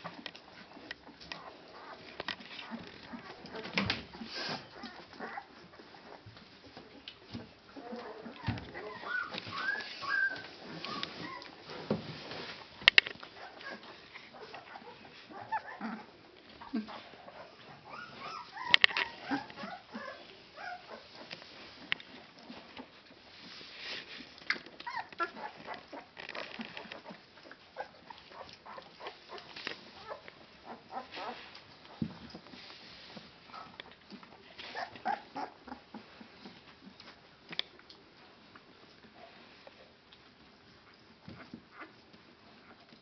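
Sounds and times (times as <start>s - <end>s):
puppies squeaking and whimpering: 0.7s - 11.8s, 13.3s - 21.3s, 24.8s - 31.5s, 34.6s - 36.2s.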